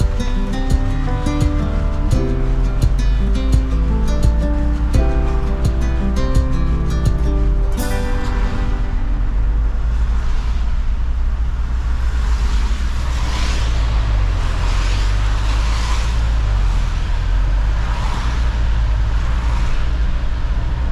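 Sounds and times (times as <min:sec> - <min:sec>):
engine and tyres rumbling: 0:00.0 - 0:20.9
tyres hissing on wet road: 0:09.9 - 0:20.9.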